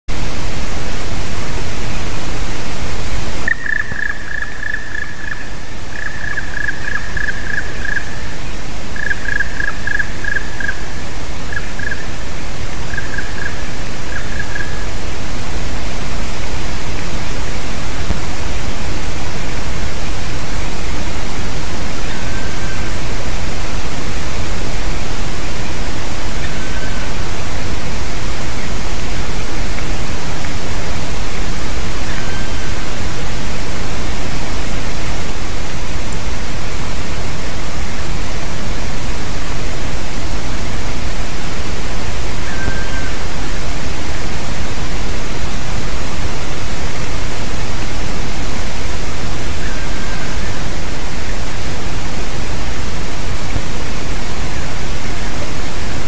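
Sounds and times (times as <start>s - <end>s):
loud steady hiss: 0.1s - 56.0s
woodpecker calling: 3.5s - 8.3s, 9.0s - 10.9s, 11.5s - 12.1s, 12.9s - 14.8s, 42.4s - 43.2s.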